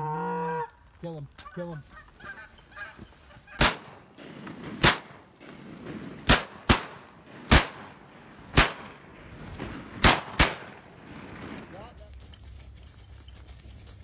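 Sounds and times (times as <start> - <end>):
shotgun shots: 3.6 - 11.7.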